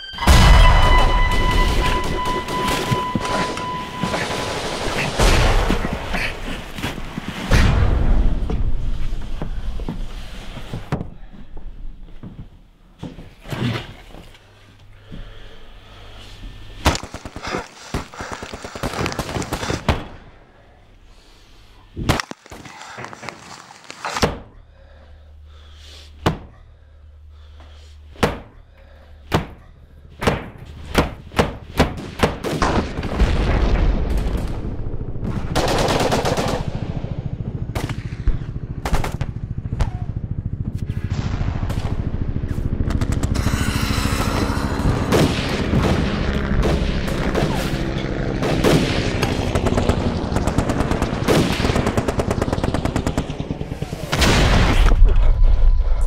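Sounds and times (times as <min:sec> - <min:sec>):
low rumble: 0:00.1 - 0:12.8, 0:33.0 - 0:56.0
rapid rifle gunfire: 0:16.8 - 0:20.0, 0:35.3 - 0:37.0, 0:48.4 - 0:54.7.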